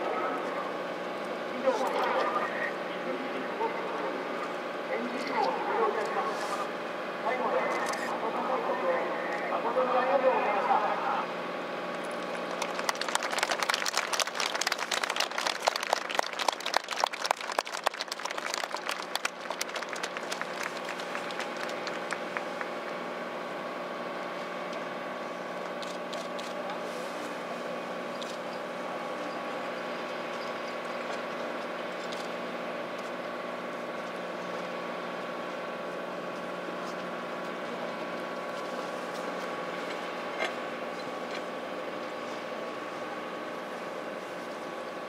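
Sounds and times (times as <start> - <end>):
steady engine drone: 0.0 - 45.0
faint claps: 12.2 - 22.8.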